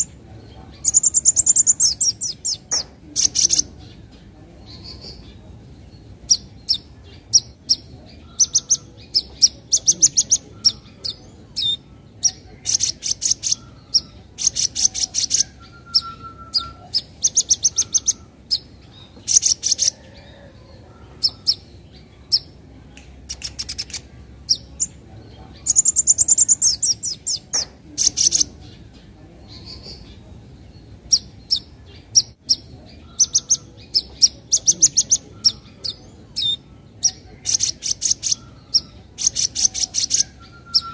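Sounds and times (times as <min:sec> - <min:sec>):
bird chattering chirps: 0:00.0 - 0:20.4, 0:21.0 - 0:22.6, 0:23.2 - 0:40.9.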